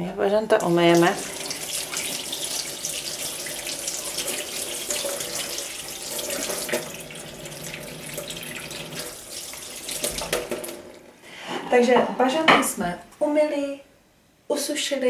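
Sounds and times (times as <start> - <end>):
tap running into a sink: 1.0 - 11.0.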